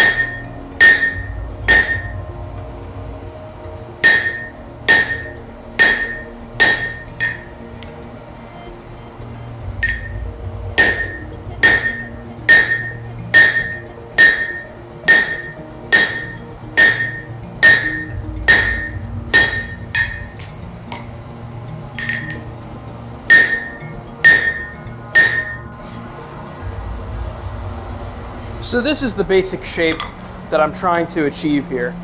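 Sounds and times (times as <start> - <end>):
hammer blows on anvil: 0.0 - 2.3, 4.0 - 7.5, 9.8 - 21.1, 22.0 - 22.5, 23.3 - 25.7
background music: 0.0 - 32.0.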